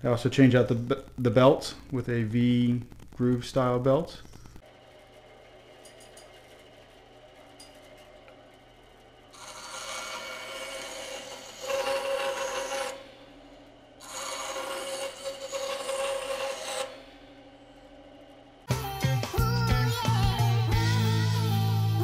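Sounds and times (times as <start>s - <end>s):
bandsaw motor hum: 4.6s - 22.0s
saw blade rasping through wood: 9.3s - 13.0s, 14.0s - 17.0s.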